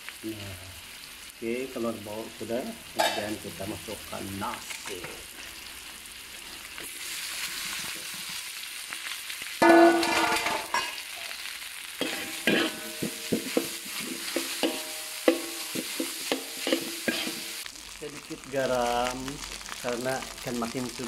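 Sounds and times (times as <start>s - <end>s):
rice sizzling in a wok: 0.0s - 21.0s
metal spatula scraping wok: 9.6s - 11.4s, 12.0s - 17.6s
spatula clacking against wok: 12.0s - 17.4s.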